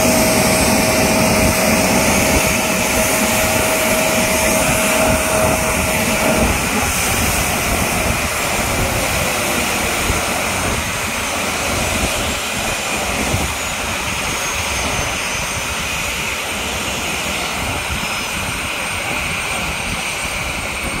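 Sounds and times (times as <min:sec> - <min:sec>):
steady tone: 0:00.0 - 0:15.2
jet engines running: 0:00.0 - 0:21.0.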